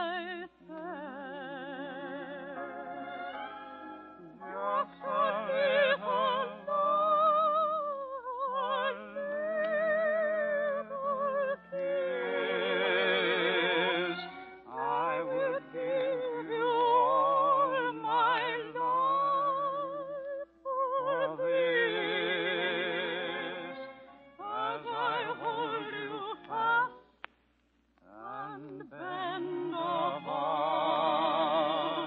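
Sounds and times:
musical accompaniment: 0.0 - 7.8, 21.5 - 27.3
operatic soprano singing: 0.0 - 27.0, 28.0 - 32.0.

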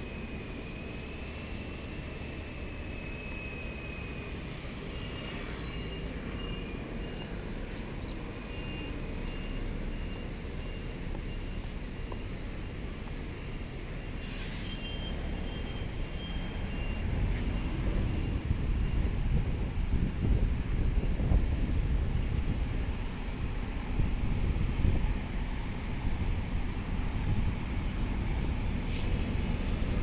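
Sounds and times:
distant road traffic rumble: 0.0 - 30.0
brief hiss: 14.2 - 15.0, 28.8 - 29.4.

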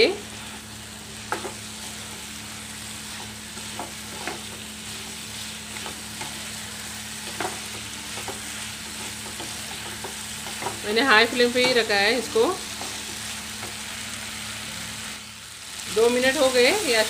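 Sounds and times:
chicken sizzling in pan: 0.0 - 17.0.

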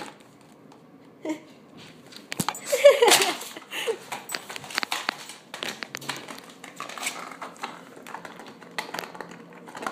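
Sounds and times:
puppy chewing on clay pot: 4.2 - 9.9.

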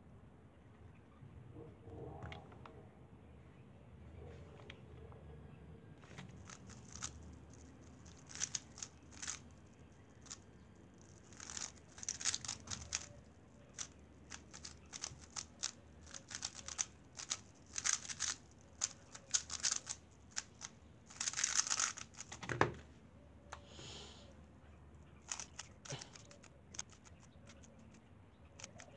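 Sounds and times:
puzzle cube clicking turns: 6.1 - 22.6, 25.2 - 28.0, 28.6 - 28.9.

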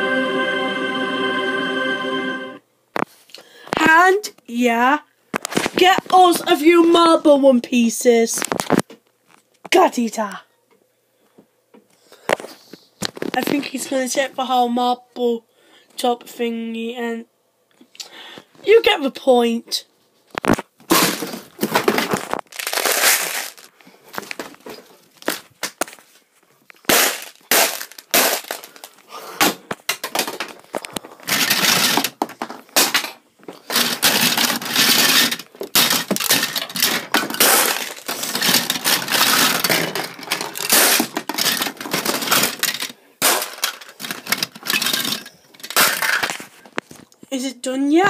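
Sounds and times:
plastic pieces clattering and clicking: 20.3 - 26.0, 26.7 - 47.0.

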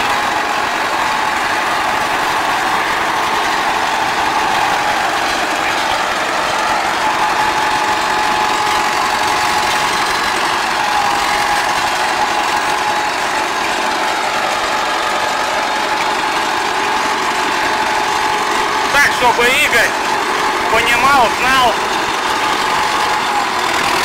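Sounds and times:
tractor diesel engine running: 0.0 - 24.0.

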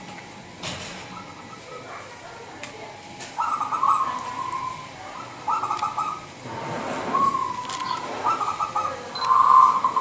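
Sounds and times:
dove cooing: 3.4 - 6.3, 7.0 - 10.0.

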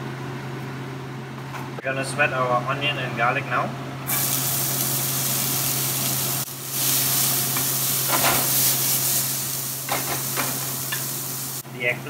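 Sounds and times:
onion sizzling in oil: 4.1 - 11.6.

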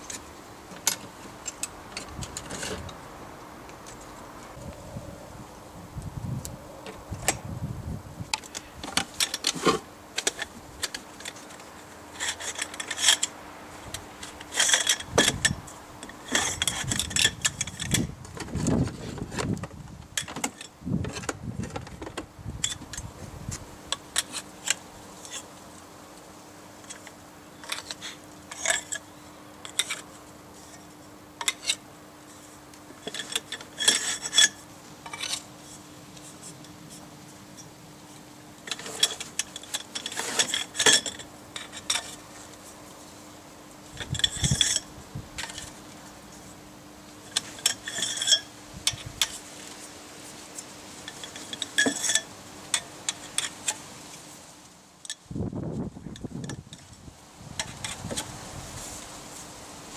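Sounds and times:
faint steady hum: 0.0 - 59.9
metal antenna sections clinking: 8.4 - 18.1, 38.6 - 42.2, 43.9 - 45.8, 47.2 - 49.8, 50.5 - 53.8.

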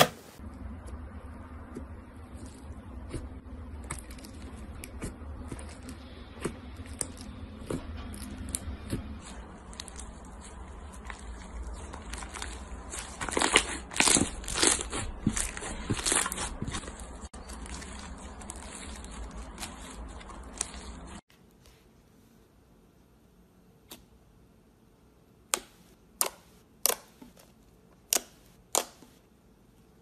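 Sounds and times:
slime crackling and popping: 3.8 - 21.2.

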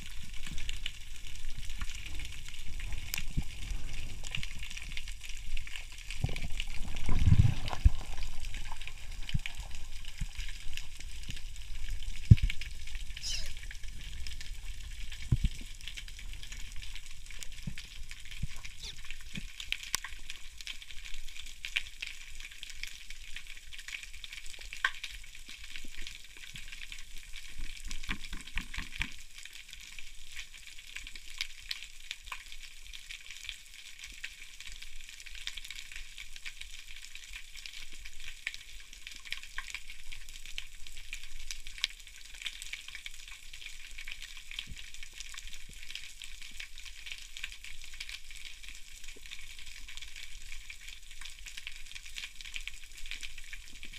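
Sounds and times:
snapping shrimp crackling underwater: 0.0 - 22.9, 27.5 - 29.4.

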